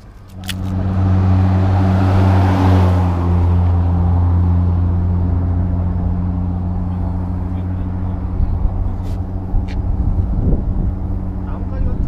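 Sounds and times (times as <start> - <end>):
vehicle passing close: 0.0 - 12.0
vehicle engine running: 3.1 - 12.0.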